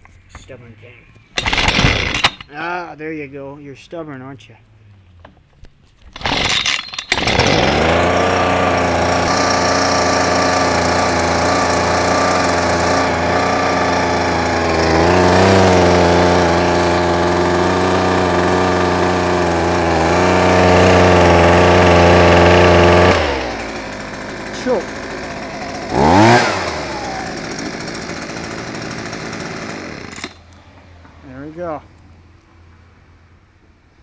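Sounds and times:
leaf blower engine running: 0:01.4 - 0:02.5, 0:06.2 - 0:30.6.

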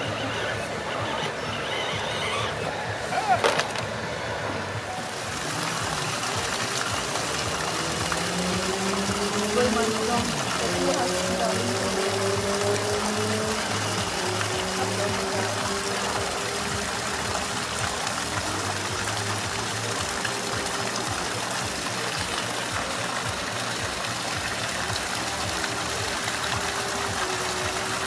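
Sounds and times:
creek running over rocks: 0:00.0 - 0:28.0.

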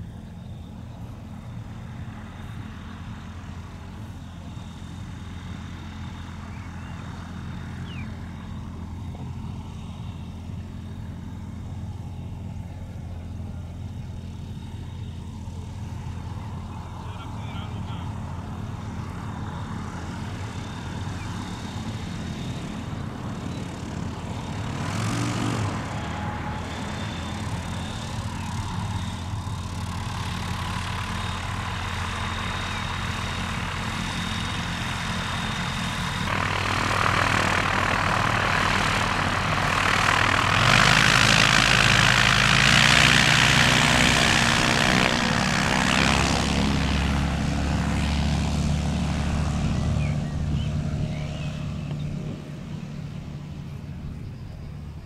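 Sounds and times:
light aircraft propeller engine: 0:00.0 - 0:55.0.

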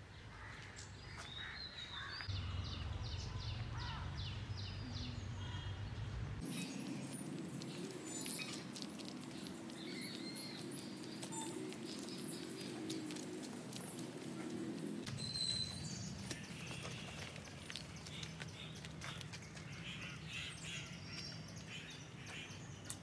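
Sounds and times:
small ticks: 0:07.3 - 0:14.6.

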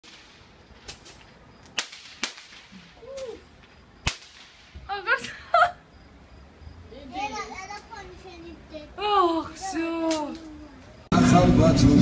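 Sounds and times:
sharp cracks: 0:00.0 - 0:05.3, 0:10.0 - 0:10.6.

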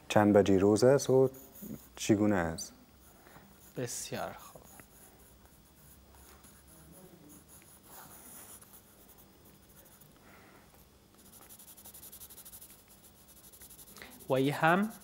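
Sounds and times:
pencil scratching on paper: 0:01.1 - 0:02.1, 0:03.0 - 0:10.1, 0:11.1 - 0:15.0.

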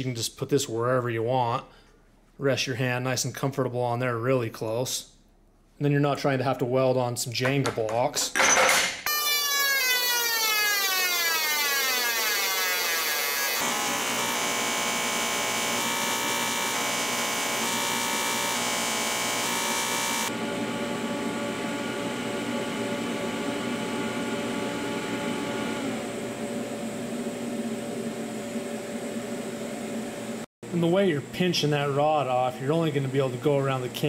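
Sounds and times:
welding arc buzzing: 0:09.2 - 0:26.3.

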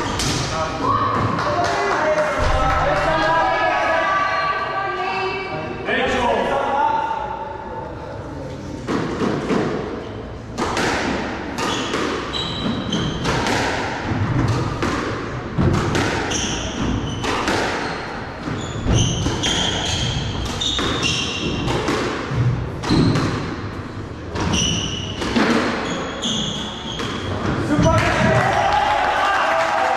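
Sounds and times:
squash ball hits: 0:10.5 - 0:23.7, 0:24.3 - 0:25.8
shoes squeaking on wooden floor: 0:11.6 - 0:13.3, 0:16.3 - 0:21.8, 0:24.4 - 0:28.0.

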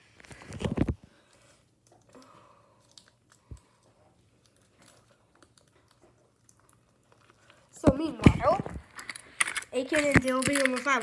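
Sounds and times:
toy pieces clicking: 0:08.9 - 0:11.0.

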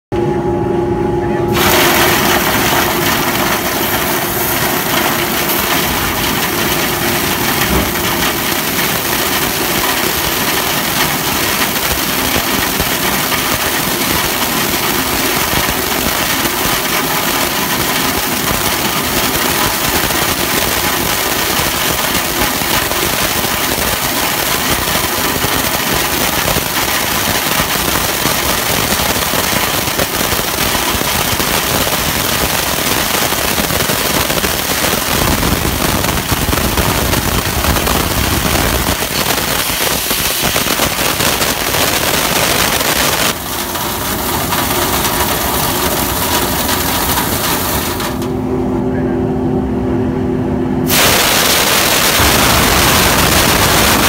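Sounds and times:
crackle of dust and debris: 0:01.6 - 0:48.4, 0:50.9 - 0:54.0
compressed air rushing: 0:50.9 - 0:54.0.

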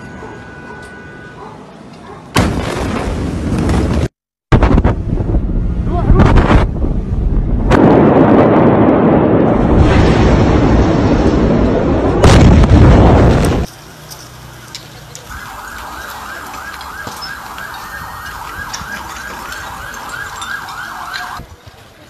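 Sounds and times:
siren alarm wailing: 0:00.0 - 0:01.5, 0:15.2 - 0:21.4
explosion roar: 0:02.4 - 0:13.7
loud crack: 0:07.7 - 0:13.7.

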